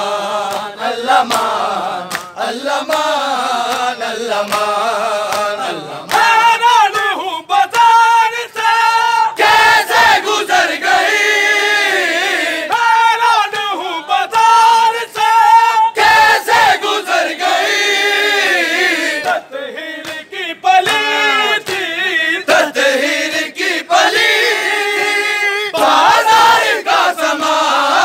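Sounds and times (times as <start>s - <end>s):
crowd: 0.0s - 28.0s
men chanting in chorus: 0.0s - 28.0s
chest-beating slaps: 0.5s - 7.9s.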